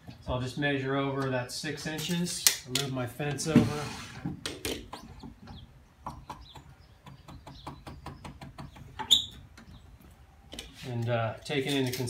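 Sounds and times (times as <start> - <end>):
saw fence sliding on rail: 3.6 - 4.3
short squeaks: 9.0 - 9.5.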